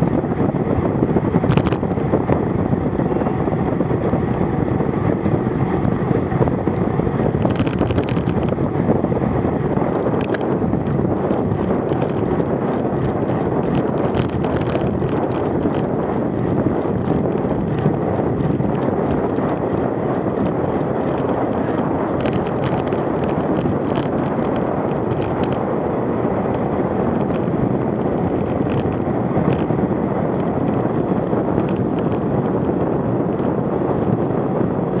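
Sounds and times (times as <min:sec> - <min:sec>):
wind buffeting microphone: 0:00.0 - 0:35.0
bicycle clicks and rattles: 0:03.0 - 0:35.0.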